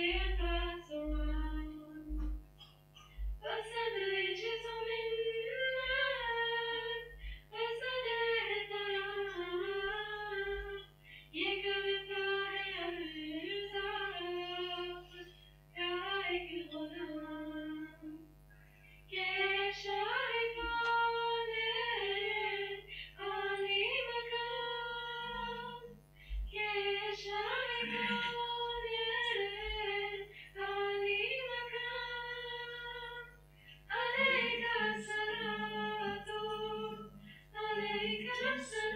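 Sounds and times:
women singing unaccompanied: 0.0s - 2.4s, 3.4s - 18.2s, 19.1s - 38.9s.

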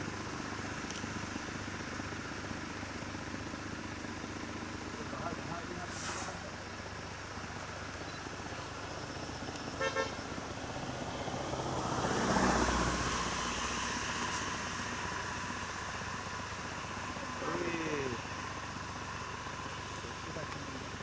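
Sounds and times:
passing vehicle engine and tyres: 0.0s - 21.0s
vehicle horn toot: 9.8s - 10.2s.

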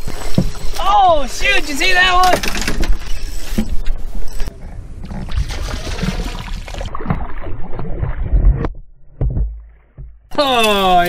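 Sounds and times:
fish splashing in water: 5.1s - 8.6s.

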